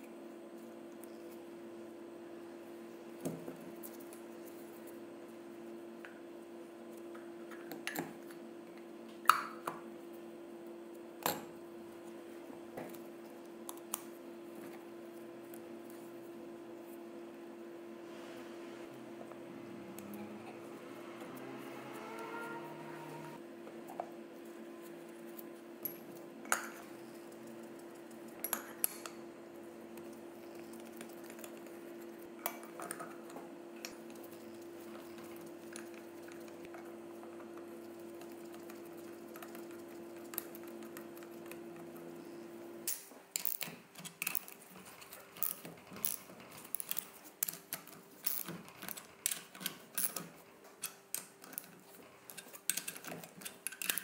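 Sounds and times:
low steady hum: 0.0s - 42.9s.

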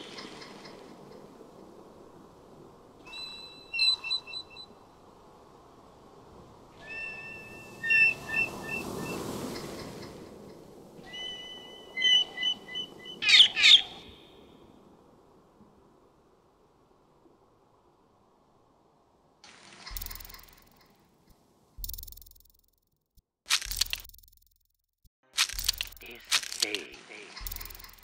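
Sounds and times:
bird-like chirping: 3.1s - 4.8s, 6.8s - 10.0s, 11.0s - 14.3s, 19.9s - 20.9s, 25.5s - 28.0s.

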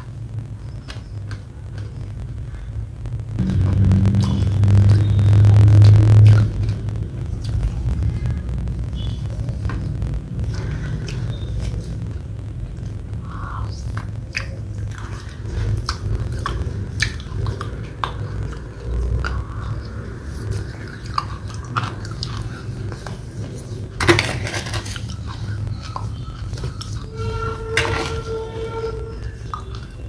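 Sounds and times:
faint music: 0.0s - 30.0s
low hum: 0.0s - 30.0s
noisy burst: 0.0s - 30.0s
wet eating and chewing: 3.4s - 24.0s.

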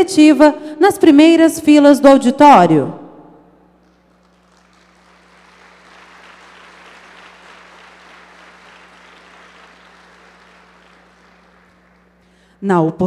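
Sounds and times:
audience applauding: 3.8s - 12.5s.

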